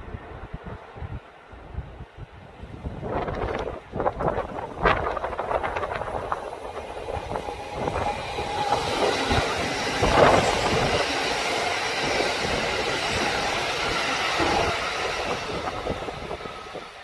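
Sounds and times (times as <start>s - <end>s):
train wheels on rail: 3.0s - 17.0s.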